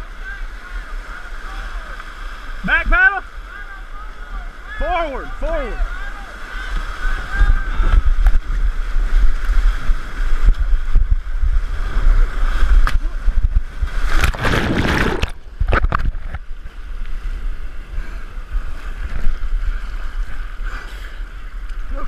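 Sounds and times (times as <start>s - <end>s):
churning splash: 11.5s - 16.4s
sharp splashes: 13.8s - 16.2s.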